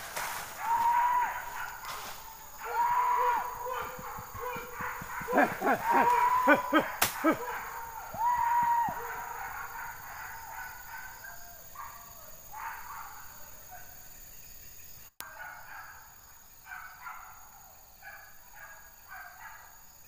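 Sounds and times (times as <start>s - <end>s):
hunting dogs yelping: 0.5s - 14.0s, 15.2s - 19.7s
dog baying: 2.6s - 11.4s.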